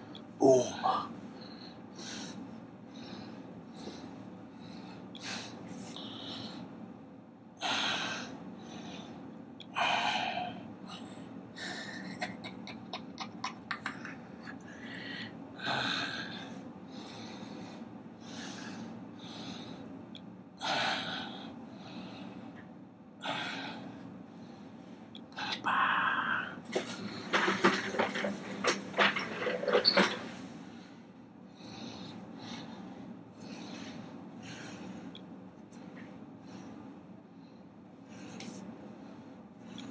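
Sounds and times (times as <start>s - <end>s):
steady low hum: 0.0s - 39.9s
man breathing forcefully: 1.3s - 6.8s, 14.6s - 19.9s, 30.6s - 35.2s.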